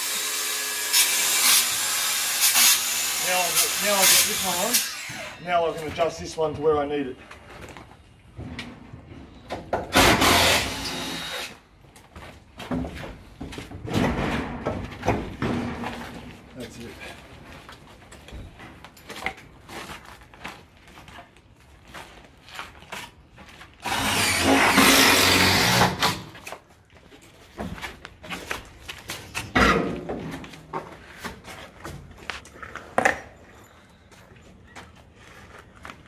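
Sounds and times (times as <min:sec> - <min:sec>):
power drill driving a screw: 0:09.9 - 0:11.6, 0:23.8 - 0:26.3.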